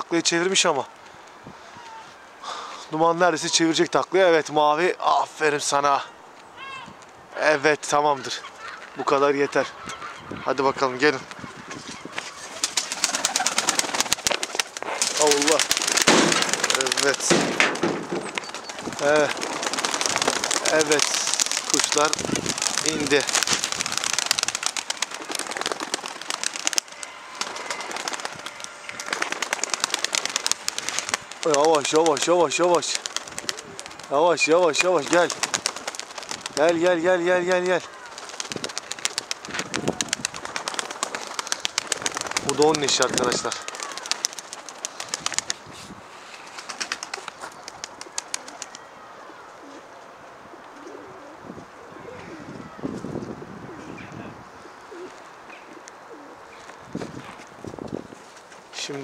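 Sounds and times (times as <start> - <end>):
pigeon wings flapping: 11.2 - 48.9.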